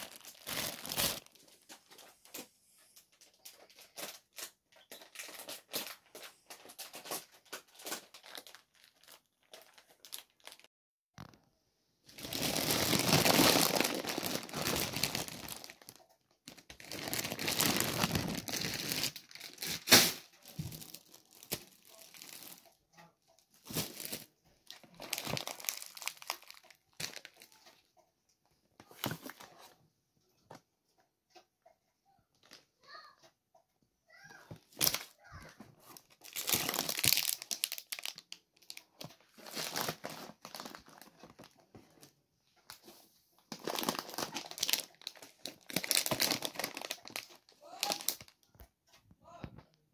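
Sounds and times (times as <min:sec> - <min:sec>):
plastic packaging crinkling: 0:00.0 - 0:11.4, 0:12.1 - 0:22.8, 0:23.4 - 0:27.8, 0:34.7 - 0:35.2, 0:35.8 - 0:48.5.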